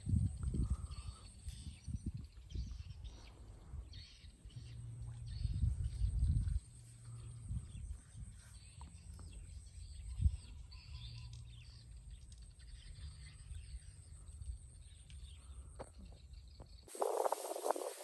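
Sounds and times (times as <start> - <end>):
bird chirps: 0.8 - 18.0.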